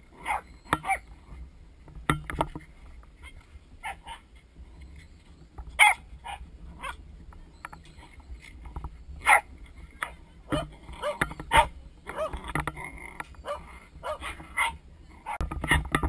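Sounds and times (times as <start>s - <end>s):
dogs barking: 0.2s - 1.0s, 3.8s - 4.3s, 5.8s - 7.0s, 9.2s - 12.5s, 13.4s - 15.5s.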